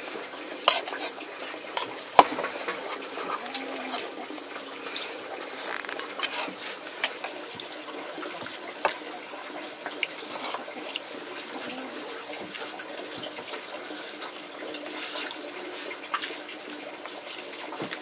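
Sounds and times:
running water: 0.0s - 18.0s.

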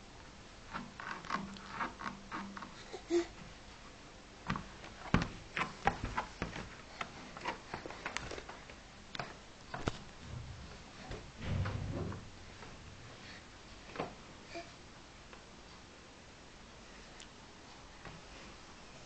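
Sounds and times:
low rubbing rumble: 10.1s - 13.4s.

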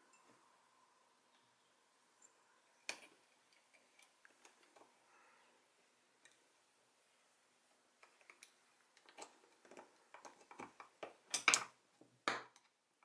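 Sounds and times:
metal parts clicking and tapping: 8.0s - 11.8s.

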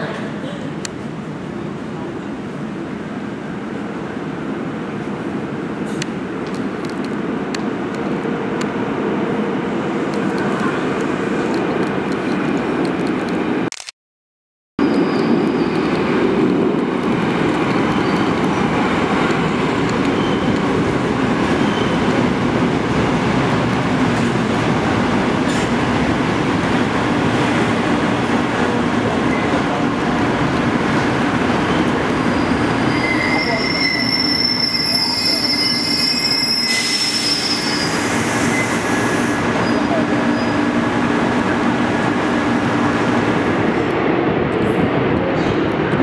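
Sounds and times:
train wheels rumbling on rails: 14.8s - 46.0s
high brake squeal: 21.6s - 22.1s, 31.7s - 40.6s.

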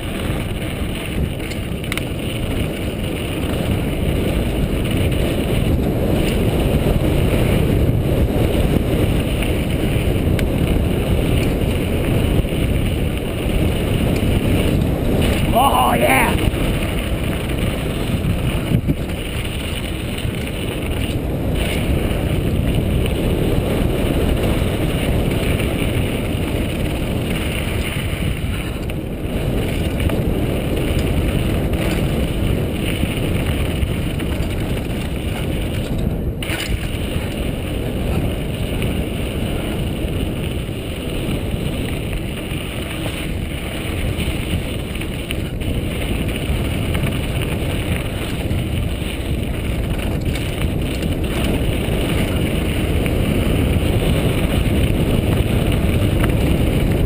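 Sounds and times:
tyres rolling on dirt trail: 0.0s - 57.0s
wind rushing over microphone: 0.0s - 57.0s
bike knocking over bumps: 29.6s - 38.6s.

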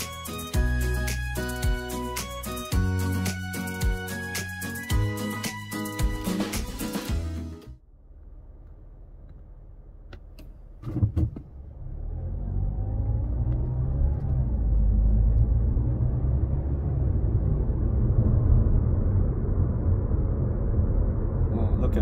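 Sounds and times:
car engine and road rumble: 7.7s - 22.0s.

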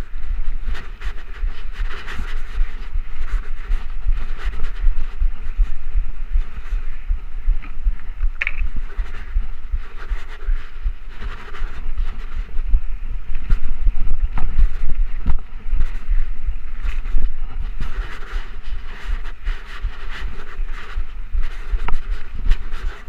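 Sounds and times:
tyre noise on dirt trail: 0.0s - 23.0s
wind buffeting camera: 0.0s - 23.0s
bike clicks and rattles: 7.6s - 9.4s.

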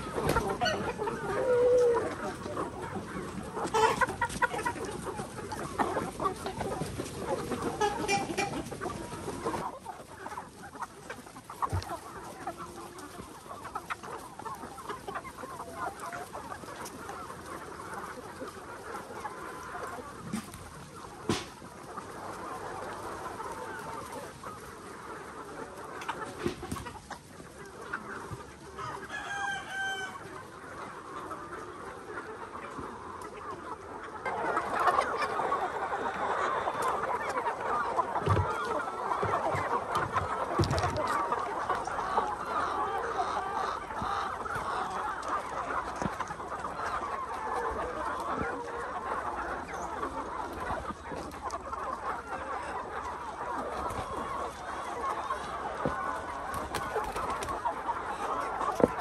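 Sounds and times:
chickens clucking: 0.0s - 59.0s
rooster crowing: 29.1s - 30.2s.

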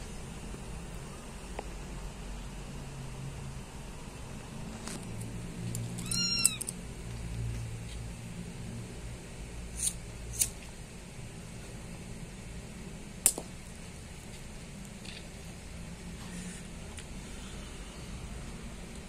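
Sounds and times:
low steady hum: 0.0s - 19.0s
kitten mewing: 6.0s - 6.7s.

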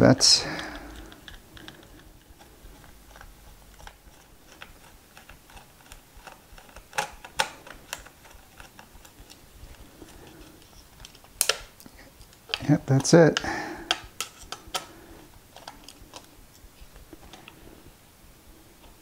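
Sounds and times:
screwdriver clicking on screws: 3.1s - 9.4s.

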